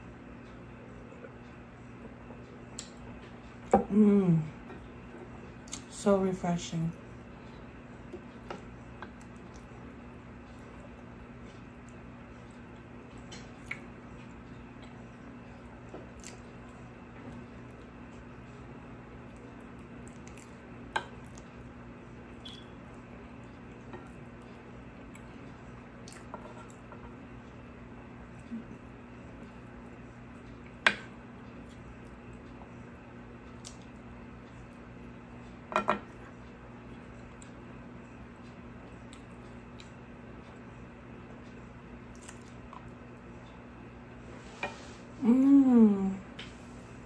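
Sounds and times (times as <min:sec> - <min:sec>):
faint chewing: 0:08.1 - 0:15.2, 0:15.9 - 0:18.3, 0:19.2 - 0:21.7, 0:41.3 - 0:43.6.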